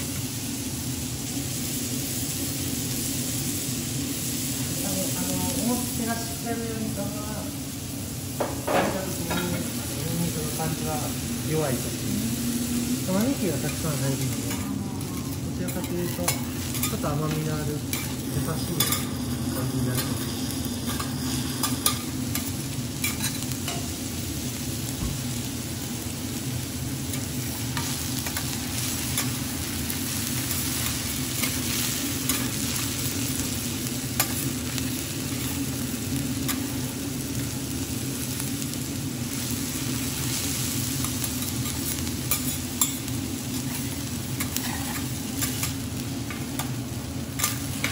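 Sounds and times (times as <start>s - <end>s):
onion and garlic sizzling: 0.0s - 47.9s
metal spatulas scraping griddle: 43.5s - 45.8s.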